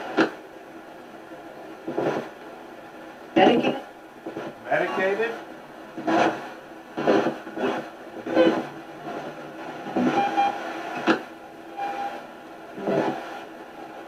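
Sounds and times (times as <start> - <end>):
radio static bursts: 3.4 - 5.4, 6.0 - 11.2.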